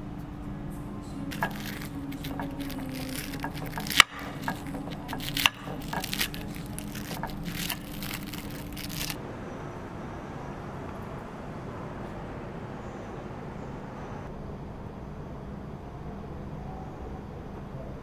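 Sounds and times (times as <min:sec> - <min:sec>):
cutlery scraping and clinking plate: 0:01.3 - 0:09.1
fried fish skin crunching: 0:01.3 - 0:09.2.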